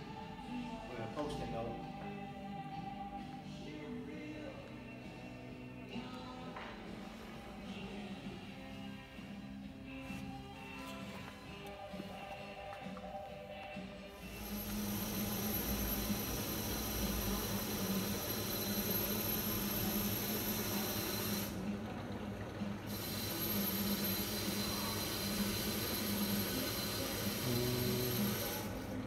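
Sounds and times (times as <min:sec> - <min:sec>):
machine running steadily: 0:14.1 - 0:29.0.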